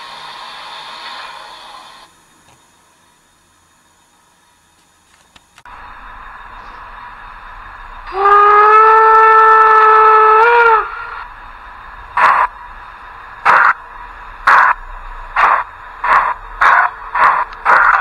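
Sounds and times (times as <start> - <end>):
steam locomotive chuffs: 0.0 - 4.4, 5.6 - 18.0
steam whistle blast: 8.0 - 11.3.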